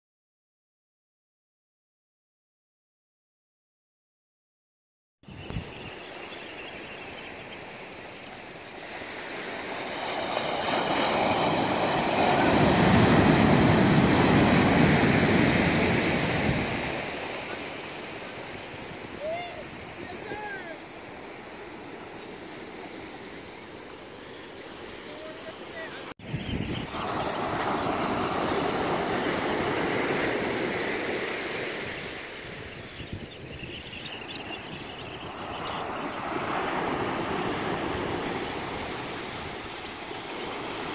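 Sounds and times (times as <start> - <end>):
faint high chirp: 5.3 - 8.4, 30.8 - 31.2, 32.6 - 36.3
waves breaking on beach: 5.6 - 40.9.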